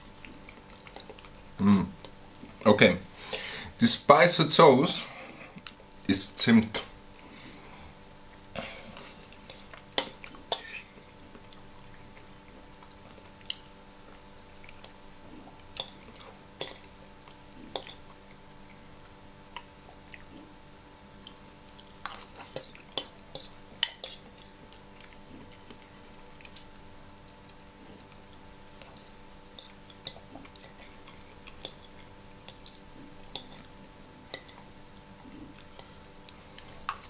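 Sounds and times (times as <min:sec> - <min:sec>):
fork clinking against ceramic bowl: 0:22.0 - 0:24.5.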